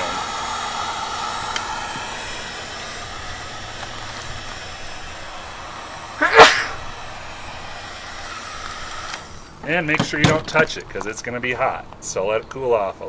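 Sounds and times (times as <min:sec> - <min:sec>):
heat gun blowing hiss: 0:00.0 - 0:10.7
short loud burst: 0:06.1 - 0:07.2.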